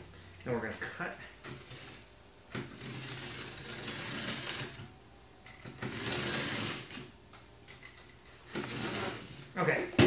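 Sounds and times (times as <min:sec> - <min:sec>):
blade cutting cardboard: 0:01.5 - 0:04.9, 0:05.7 - 0:07.1.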